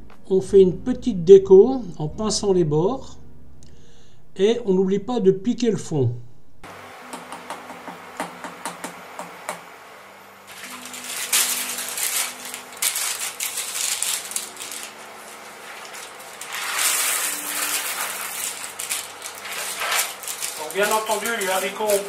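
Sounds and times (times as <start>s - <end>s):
baking paper crinkling: 10.5s - 22.0s
dried beans poured rattling: 10.5s - 22.0s.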